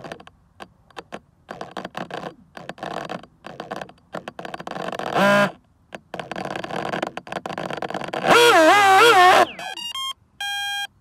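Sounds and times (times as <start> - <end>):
electric motor stuttering and crackling: 2.0 - 9.8.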